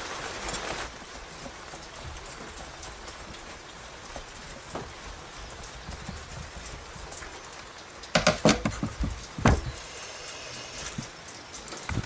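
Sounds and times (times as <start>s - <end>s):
metal knocks and clicks: 4.2s - 12.0s.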